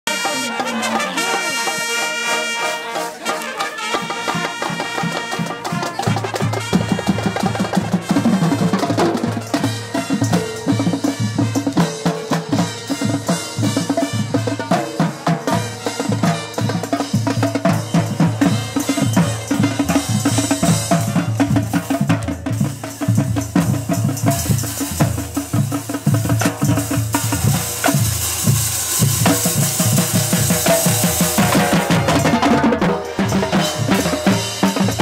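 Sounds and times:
brass and woodwinds holding chords: 0:00.0 - 0:07.5
drums and low brass beat: 0:00.0 - 0:35.0.

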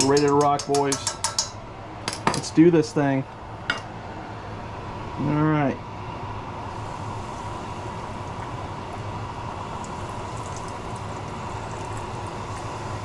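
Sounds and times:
steady hum: 0:00.0 - 0:13.0
fish frying in oil: 0:06.7 - 0:13.0.

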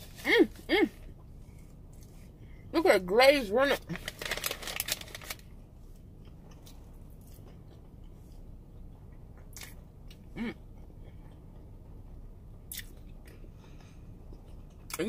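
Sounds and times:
person chewing: 0:12.6 - 0:15.0.

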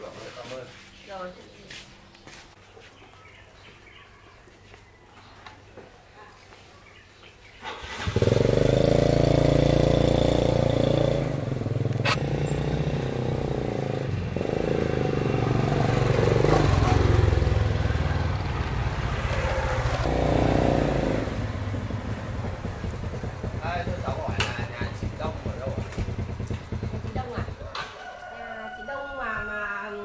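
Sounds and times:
motorcycle engine running: 0:07.8 - 0:27.9.

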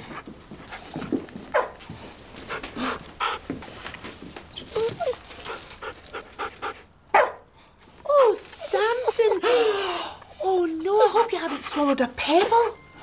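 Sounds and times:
dog whimpering and whining: 0:04.5 - 0:05.7, 0:08.1 - 0:13.0.

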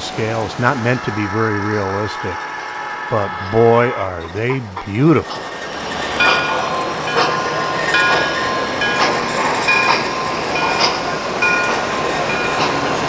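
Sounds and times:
model train wheels clicking on rail joints: 0:03.4 - 0:13.0.

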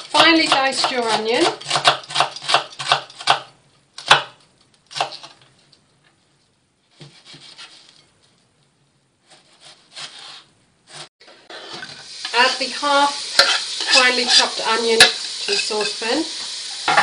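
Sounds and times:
knife chopping onion on wooden board: 0:00.0 - 0:05.3, 0:06.9 - 0:07.7.

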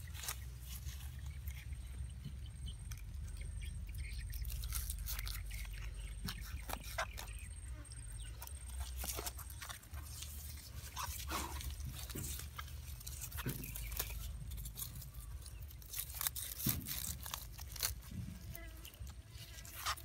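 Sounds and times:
clicks and crackles: 0:08.4 - 0:20.0
tie strip crinkling and tearing: 0:08.4 - 0:20.0.

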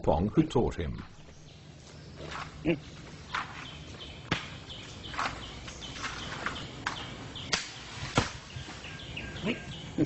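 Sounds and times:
bird chirping: 0:00.0 - 0:10.0
cracks and knocks in palm fronds: 0:04.3 - 0:08.8.

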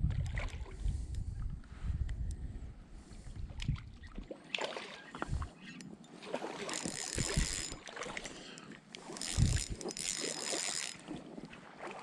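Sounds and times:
river water splashing: 0:04.1 - 0:05.2, 0:06.0 - 0:12.0.

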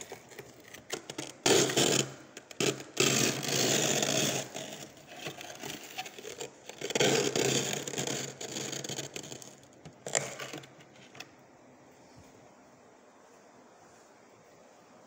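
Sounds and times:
plastic container scraping freezer frost: 0:00.0 - 0:11.3.

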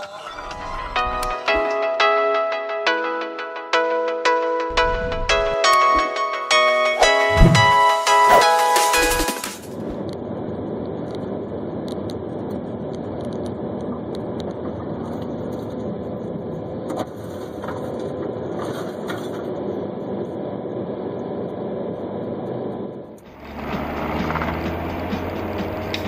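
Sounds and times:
car engine and road noise: 0:04.7 - 0:06.1, 0:09.7 - 0:26.0.

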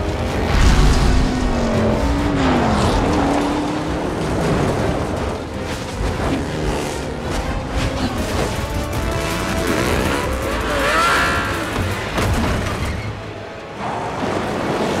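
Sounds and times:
car engines revving hard: 0:00.0 - 0:12.8
heavy low rumble: 0:00.2 - 0:05.6.

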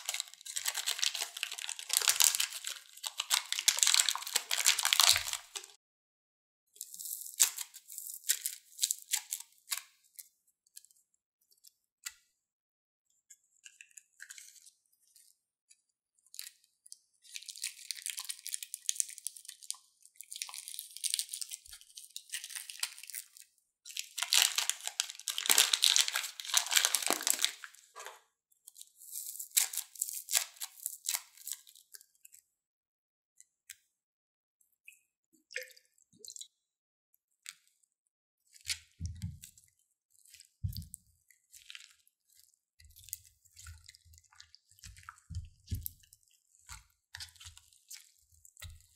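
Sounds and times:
foam beads crunching: 0:00.0 - 0:05.7, 0:24.2 - 0:27.6
plastic bags crinkling and rustling: 0:00.0 - 0:05.8, 0:24.0 - 0:28.2.

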